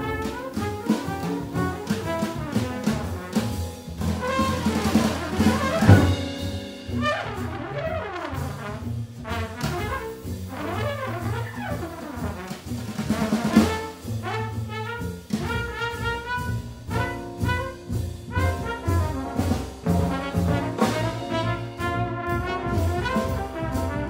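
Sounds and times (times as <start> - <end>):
double bass: 0.0 - 24.0
drum kit with cymbals: 0.0 - 24.0
trumpet: 0.0 - 24.0.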